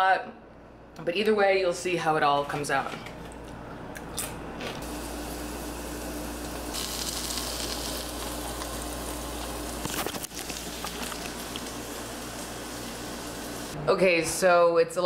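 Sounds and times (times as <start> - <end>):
vegetables sizzling in oil: 4.8 - 13.8.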